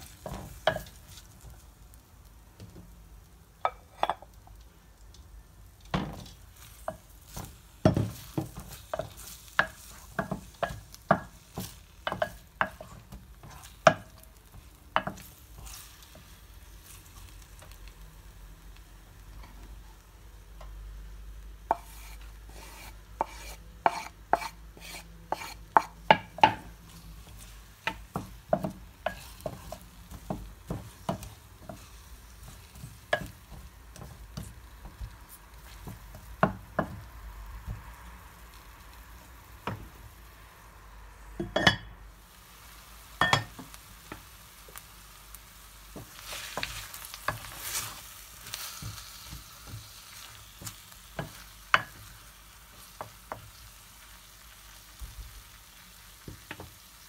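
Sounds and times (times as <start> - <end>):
wooden spoon scraping a pan: 0.0 - 1.6, 6.1 - 17.8, 21.7 - 37.1, 45.9 - 53.7
onion frying in oil: 0.0 - 57.0.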